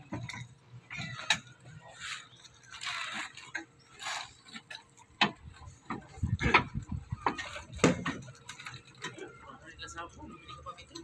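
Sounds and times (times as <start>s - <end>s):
knocks and clanks on steel formwork: 4.5s - 9.2s.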